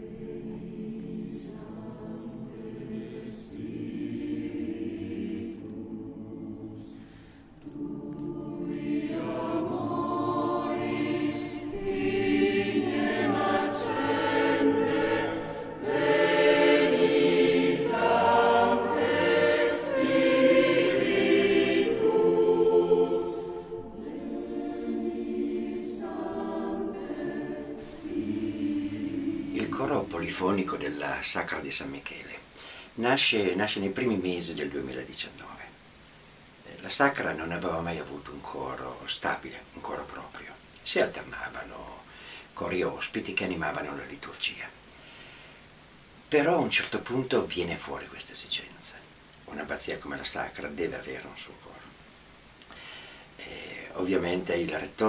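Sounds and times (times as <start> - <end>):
choir singing: 0.0 - 31.2.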